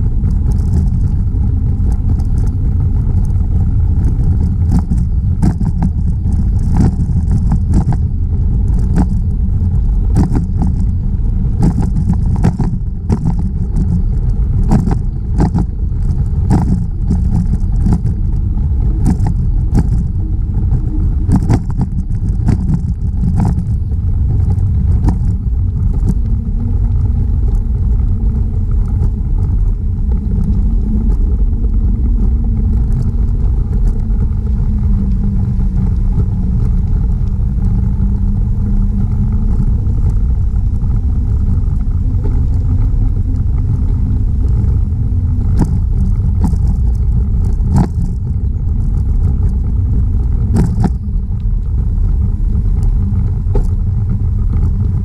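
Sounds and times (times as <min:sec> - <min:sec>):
bicycle ride rumble: 0:00.0 - 0:55.0
wind buffeting microphone: 0:00.0 - 0:55.0
clicks and knocks from bumps: 0:04.1 - 0:08.1, 0:08.7 - 0:09.3, 0:10.1 - 0:11.0, 0:11.6 - 0:14.1, 0:14.7 - 0:20.2, 0:21.3 - 0:23.8, 0:24.5 - 0:26.4, 0:45.4 - 0:49.6, 0:50.4 - 0:51.1.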